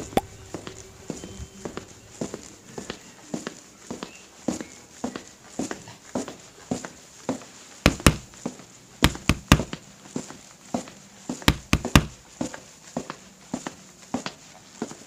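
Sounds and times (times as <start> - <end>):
percussion knocks: 7.8 - 8.3, 9.0 - 9.8, 11.5 - 12.2.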